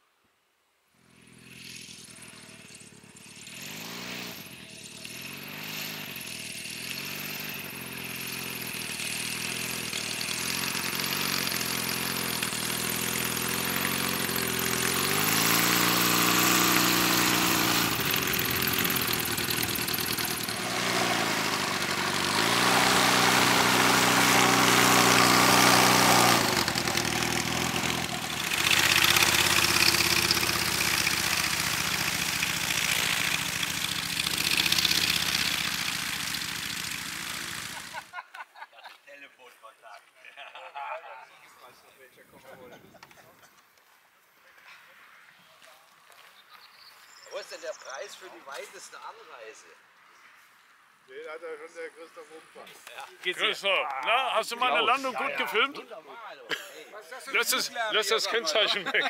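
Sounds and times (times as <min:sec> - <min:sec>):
light aircraft propeller engine: 0:01.0 - 0:38.1.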